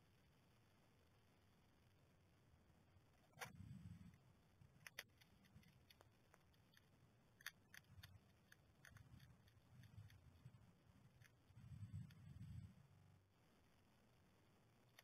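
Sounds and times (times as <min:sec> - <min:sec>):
hedgehog crunching food pellets: 0:04.7 - 0:12.2.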